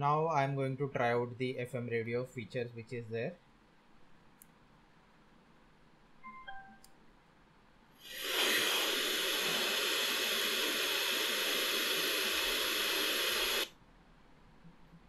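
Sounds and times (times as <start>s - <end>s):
radio static hiss: 8.0s - 13.7s.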